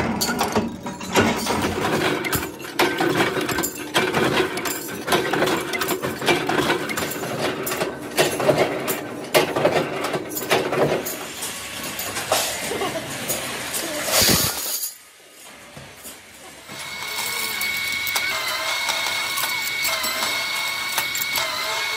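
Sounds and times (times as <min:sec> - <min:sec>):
metal press clanking: 0:00.0 - 0:11.2.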